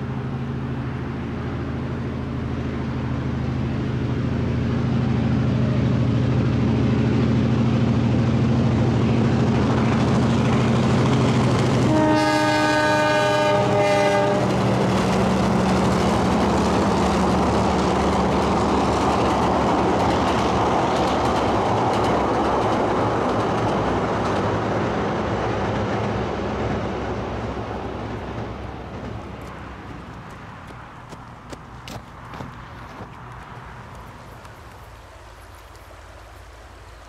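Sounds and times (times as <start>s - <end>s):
locomotive engine rumble: 0.0s - 37.0s
train wheel noise: 0.0s - 37.0s
locomotive air horn: 11.8s - 14.6s.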